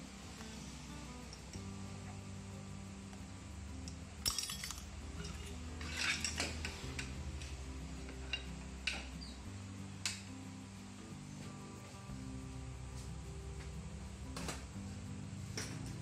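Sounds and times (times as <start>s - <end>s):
background music: 0.0s - 16.0s
metal clinks and clatter: 4.2s - 7.5s.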